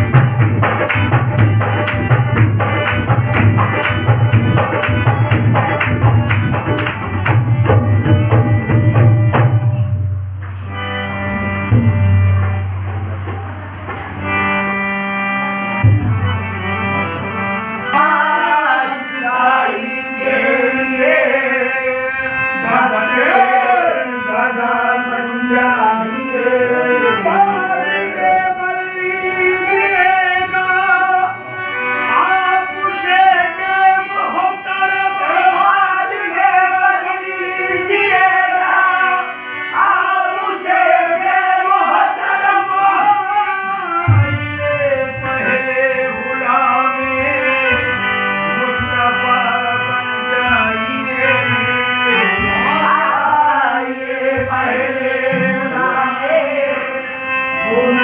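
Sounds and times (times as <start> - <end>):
harmonium held notes: 0.0 - 58.0
men singing devotional song: 17.8 - 58.0.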